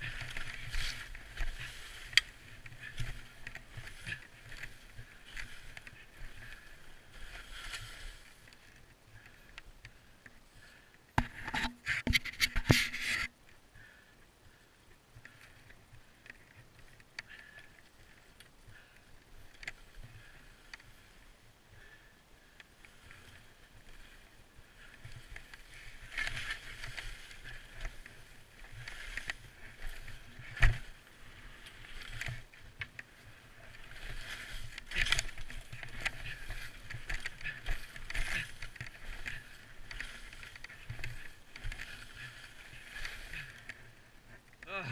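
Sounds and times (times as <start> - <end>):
skis swishing through powder snow: 0.0 - 8.6, 22.8 - 44.0.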